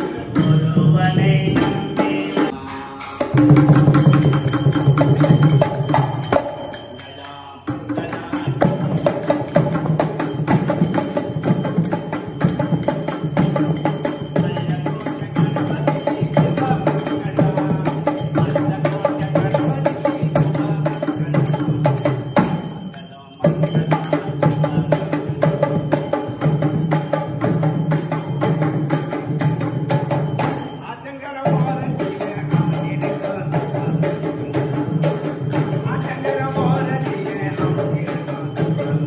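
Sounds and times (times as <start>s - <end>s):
fast hand drumming: 3.2s - 6.7s, 7.8s - 22.7s.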